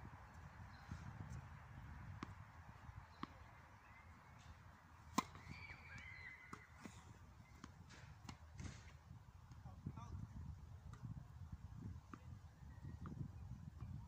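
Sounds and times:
racket striking tennis ball: 0:05.1 - 0:05.5.

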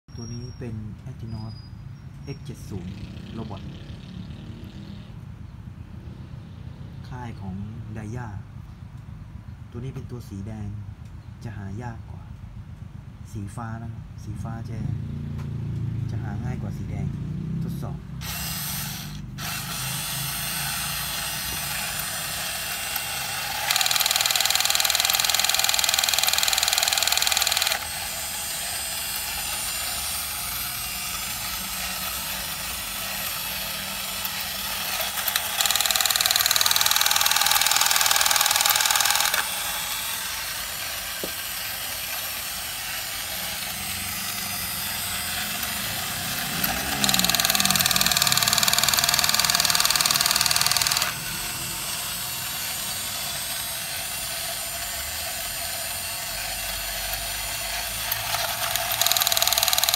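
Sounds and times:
toy robot motor whirring: 0:18.2 - 0:59.9.

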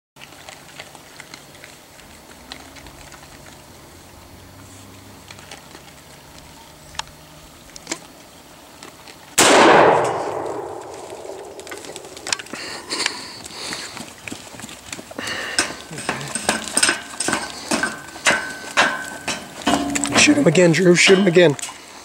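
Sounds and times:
rifle shot echoing: 0:09.4 - 0:12.4.

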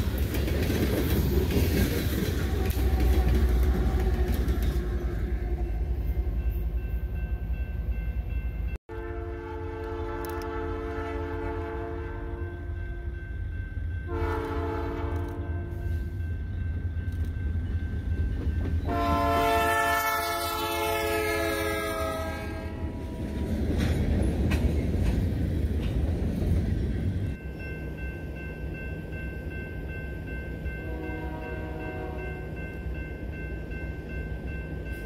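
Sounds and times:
train engine and wheels passing: 0:00.0 - 0:35.0
locomotive air horn: 0:08.9 - 0:13.1, 0:14.1 - 0:16.1, 0:18.9 - 0:23.4, 0:30.8 - 0:32.5.

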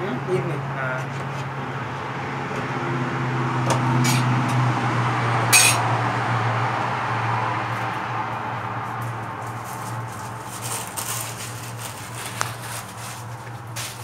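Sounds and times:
utensils clinking on steel: 0:05.6 - 0:05.8.

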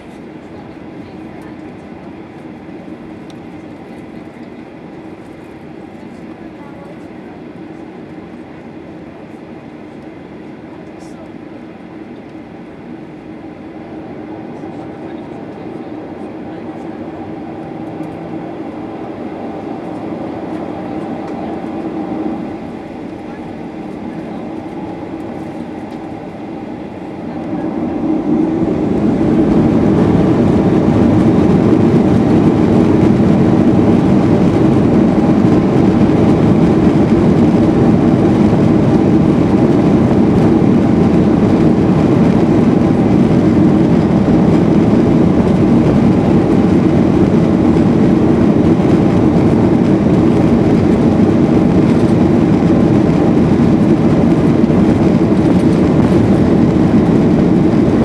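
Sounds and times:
jet engines spooling up: 0:12.2 - 0:58.0
takeoff roll rumble: 0:13.8 - 0:58.0.

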